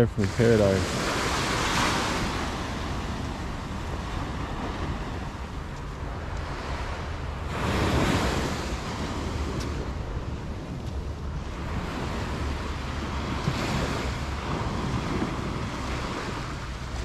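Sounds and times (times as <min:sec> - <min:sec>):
small waves on sandy beach: 0:00.0 - 0:17.0
surf surge: 0:00.0 - 0:17.0
wind rumble on microphone: 0:00.0 - 0:17.0.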